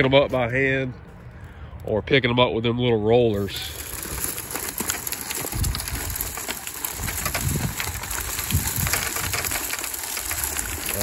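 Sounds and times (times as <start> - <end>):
nut harvester clicking and rattling: 3.2 - 11.0.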